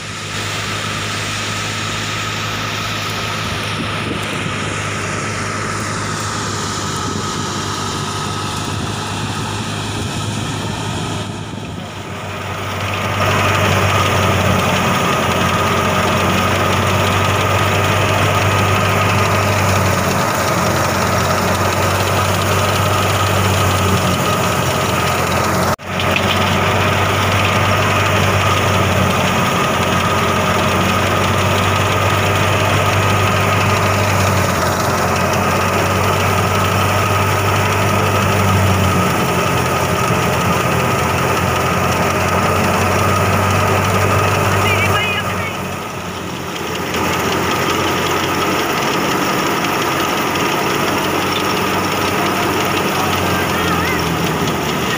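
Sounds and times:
grain pouring from chute: 0.0 - 54.9
threshing machine engine hum: 0.0 - 54.9.

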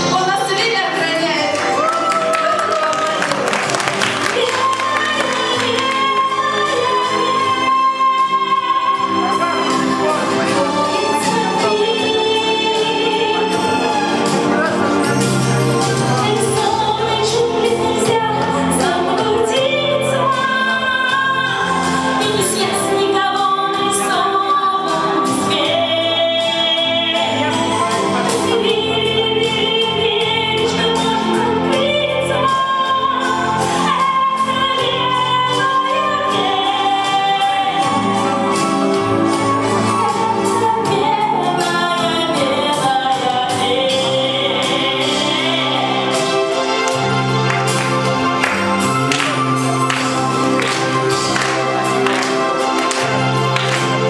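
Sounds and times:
instrumental accompaniment: 0.0 - 54.0
woman singing into a microphone: 4.0 - 14.1, 16.1 - 47.1.

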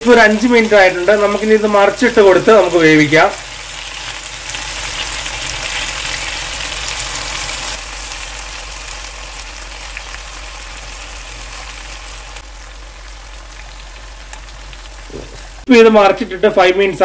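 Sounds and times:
chicken sizzling in a pan: 0.0 - 15.7.

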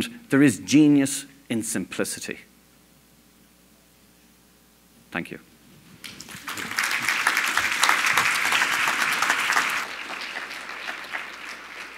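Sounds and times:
audience applauding: 6.0 - 11.9.

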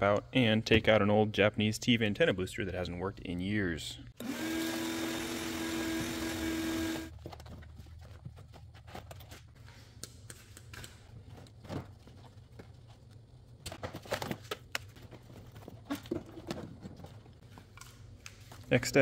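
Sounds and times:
carpet rustling: 6.9 - 9.9, 11.0 - 17.9.

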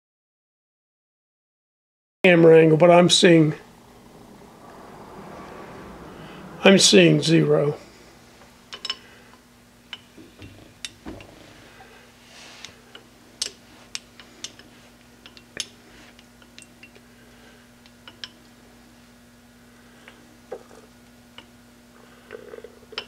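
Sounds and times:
steady low hum: 2.3 - 23.0.

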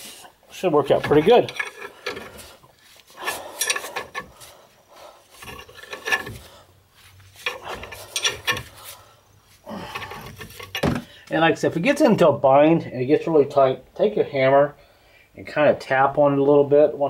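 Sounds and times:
metal rasping and grinding: 0.0 - 11.1.

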